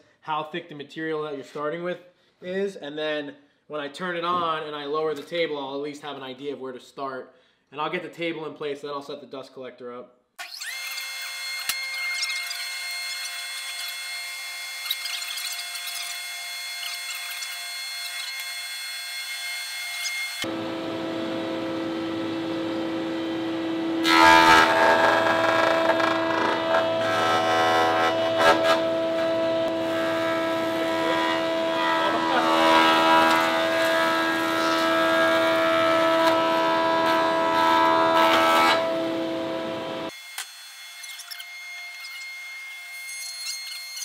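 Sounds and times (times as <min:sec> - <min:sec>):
planer cutting wood: 0:10.4 - 0:44.0
thickness planer whining: 0:10.5 - 0:44.0.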